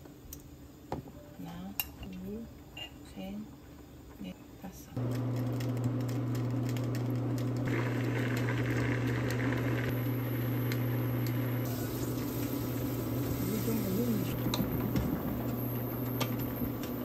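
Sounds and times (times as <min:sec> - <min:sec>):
stew boiling in a pot: 0:05.0 - 0:17.0.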